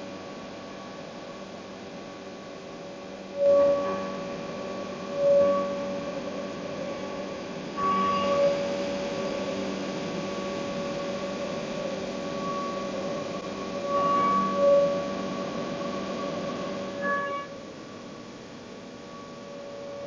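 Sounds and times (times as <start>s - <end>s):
low hum: 0.0s - 20.0s
cnc router machine whining: 3.4s - 17.4s.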